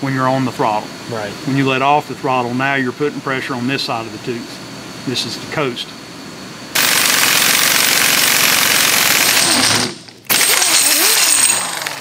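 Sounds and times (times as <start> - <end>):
pneumatic impact wrench hammering: 6.8 - 12.0.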